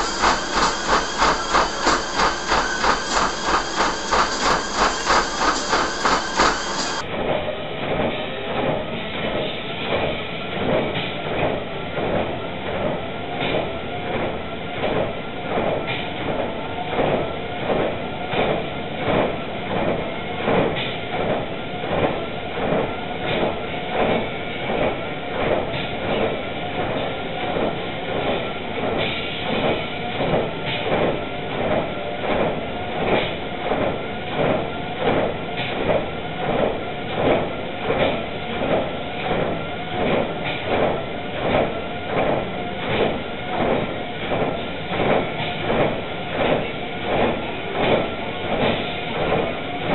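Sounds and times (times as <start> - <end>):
treadmill running noise: 0.0 - 49.9.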